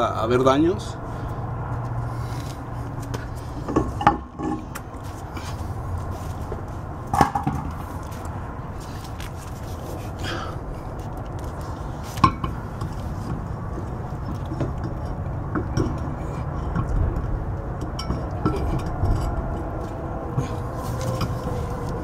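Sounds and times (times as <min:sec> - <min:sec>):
low background rumble: 0:00.0 - 0:22.0.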